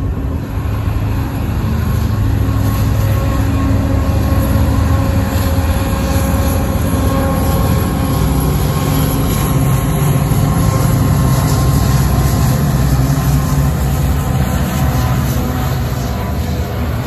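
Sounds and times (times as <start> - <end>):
diesel locomotives droning: 0.0 - 17.0.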